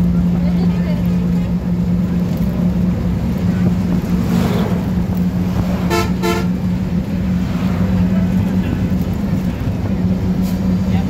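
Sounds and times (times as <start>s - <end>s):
vehicle hum and road noise: 0.0s - 11.0s
vehicle rushing past: 3.5s - 6.1s, 6.7s - 9.1s
vehicle horn toots: 5.8s - 6.6s.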